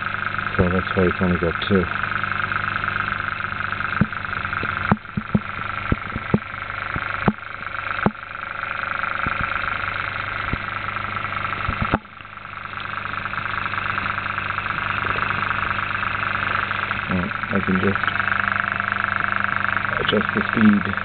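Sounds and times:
small motor whirring hum: 0.0 - 21.0
sharp clicks: 3.7 - 8.4, 9.1 - 18.3.

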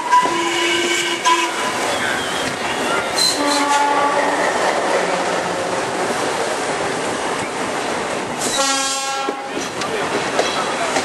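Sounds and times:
train horn: 0.0 - 1.8, 3.2 - 5.4, 8.5 - 9.5
train running noise: 0.0 - 11.0.

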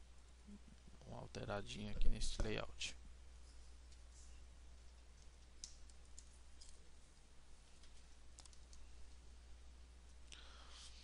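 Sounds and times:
low steady hum: 0.0 - 11.0
computer mouse clicks: 7.8 - 8.8.

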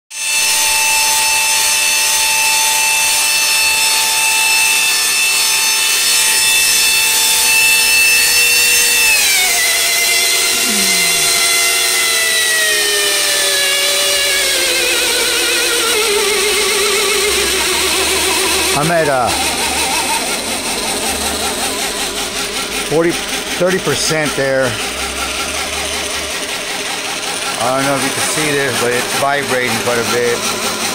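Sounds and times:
belt grinder whining: 0.1 - 30.9.

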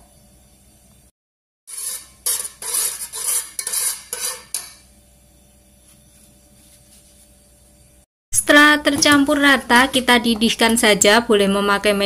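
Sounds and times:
metal spoon stirring in a pot: 1.7 - 4.9
spoon scraping and clinking on pot: 1.7 - 4.9.

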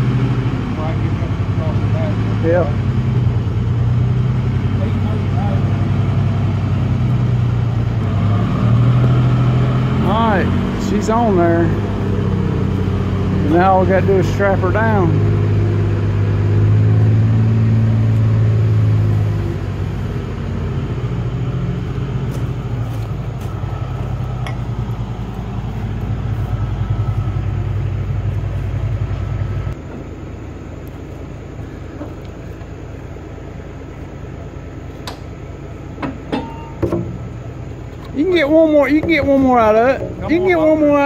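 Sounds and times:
heavy machine engine running: 0.0 - 41.0
sharp knocks: 36.0 - 37.2.

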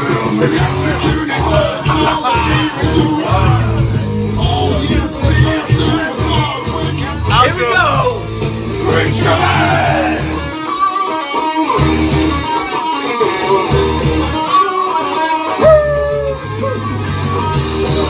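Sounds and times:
strummed electric guitar: 0.0 - 18.0
repeating bass line: 7.0 - 10.5.

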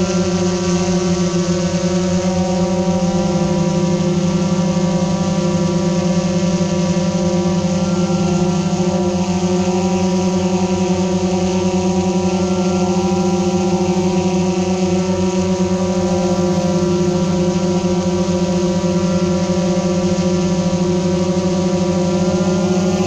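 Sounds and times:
drone motors humming: 0.0 - 23.0.

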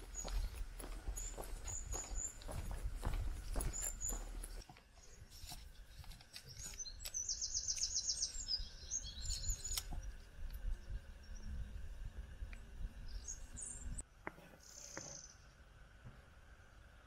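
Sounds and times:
small bird chirping and trilling: 0.1 - 5.2, 6.5 - 10.0.

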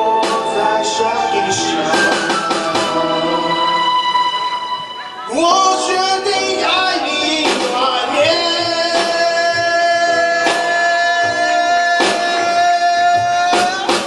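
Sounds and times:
male singing: 0.0 - 2.3, 5.3 - 14.0.

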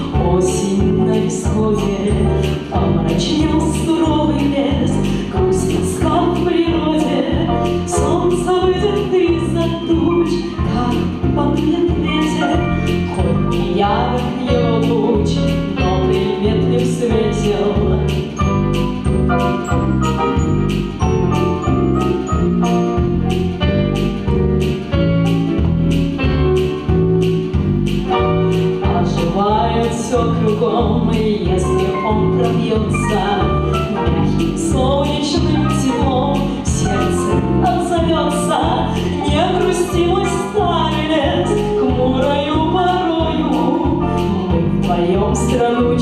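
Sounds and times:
woman singing into microphone: 0.0 - 12.8, 13.7 - 18.2, 28.9 - 46.0
backing track with bass beat: 0.0 - 46.0
keyboard chords: 4.2 - 30.6.

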